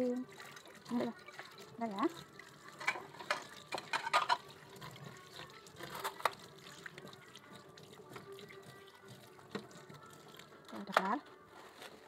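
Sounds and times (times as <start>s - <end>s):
water splashing in sink: 0.0s - 11.4s
dishes clinking: 2.8s - 4.5s.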